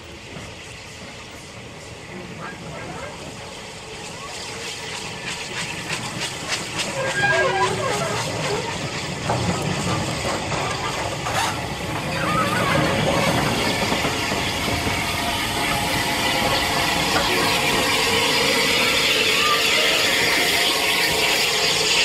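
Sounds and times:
steam hissing from locomotive: 0.0s - 22.0s.

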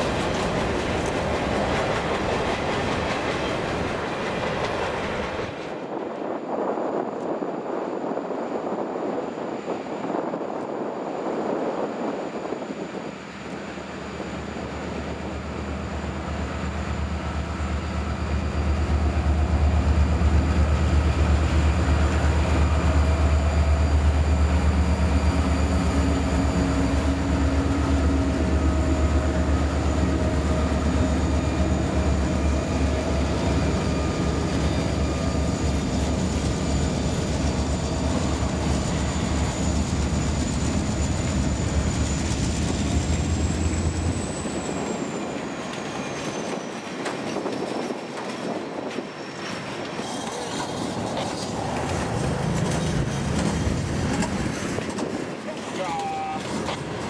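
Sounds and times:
diesel locomotive engines: 0.0s - 57.0s
freight cars rolling clatter: 32.5s - 57.0s.

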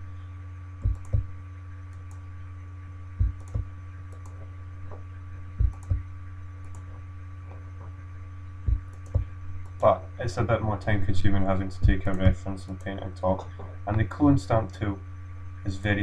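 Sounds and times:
low electrical hum: 0.0s - 16.0s
computer mouse clicks: 0.8s - 1.2s, 3.2s - 4.5s, 5.6s - 6.0s, 6.6s - 7.6s, 8.7s - 9.9s.

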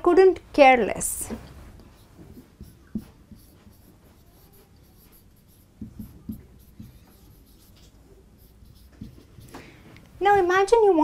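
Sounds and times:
marker writing on whiteboard: 1.4s - 9.6s.

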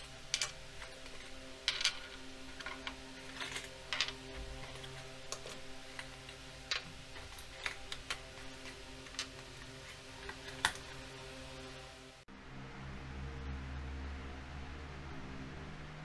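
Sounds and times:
plastic pieces clicking on wooden table: 0.3s - 9.4s.

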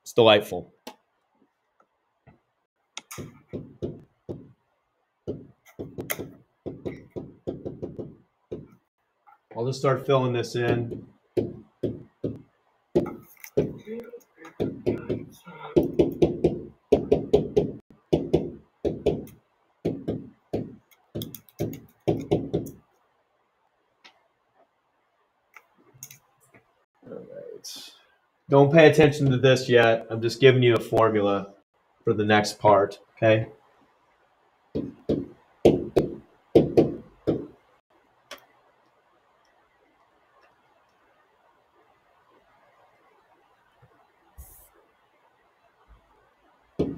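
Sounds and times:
pen knocking on writing board: 3.2s - 4.6s, 5.2s - 8.8s, 10.7s - 12.4s, 13.0s - 13.8s, 14.5s - 22.8s, 34.8s - 37.6s.

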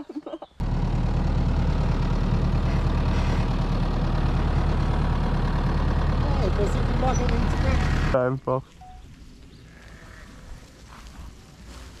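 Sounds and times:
tractor diesel engine idling: 0.6s - 8.2s.

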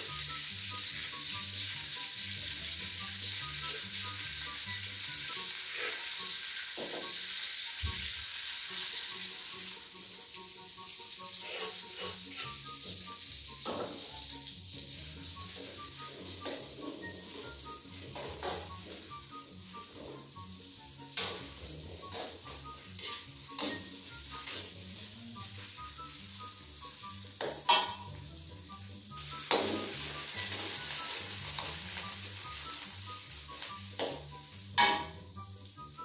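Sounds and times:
spice paste sizzling in oil: 0.0s - 36.0s
metal spatula scraping wok: 5.6s - 6.2s, 11.3s - 12.8s, 15.4s - 20.4s, 21.1s - 25.7s, 27.6s - 28.1s.

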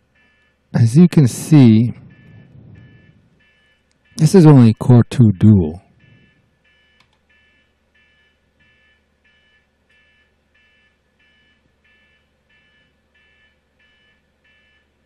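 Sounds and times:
faint electronic beeps: 0.1s - 15.0s
low steady hum: 0.8s - 3.5s, 4.2s - 6.4s.

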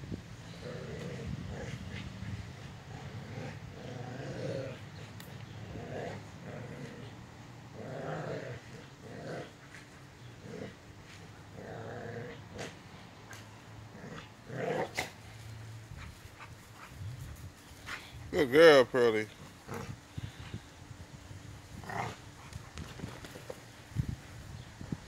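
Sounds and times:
dogs growling in play: 0.4s - 13.0s, 13.8s - 15.3s, 19.3s - 20.6s, 21.7s - 23.6s.

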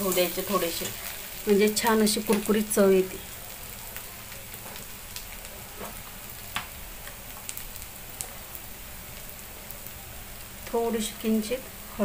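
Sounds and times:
food sizzling in frying pan: 0.0s - 12.0s
oil pops and crackles: 3.9s - 9.9s.

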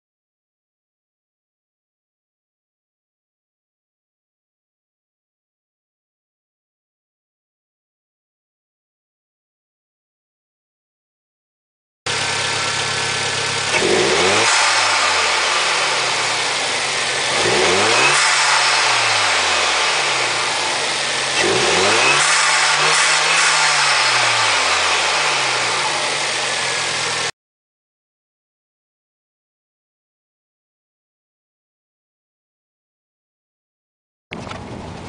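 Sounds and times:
turbocharged car engine revving: 12.1s - 27.3s.

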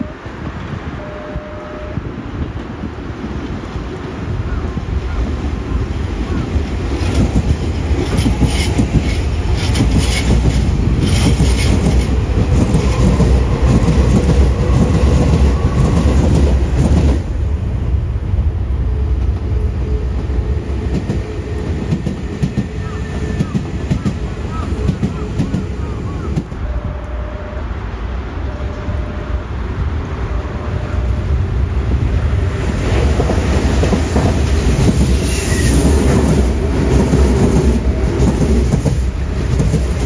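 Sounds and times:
electric train passing: 0.0s - 40.0s
train wheels clattering over rail joints: 6.7s - 17.2s, 32.8s - 40.0s.

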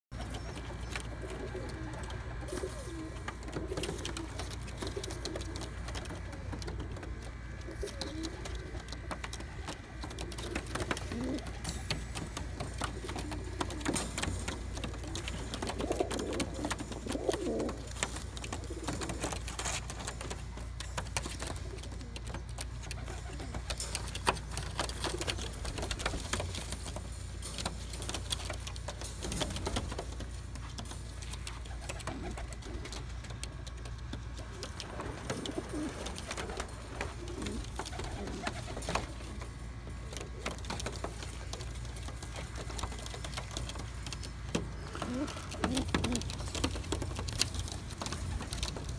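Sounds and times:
pigeons cooing: 0.2s - 48.9s.

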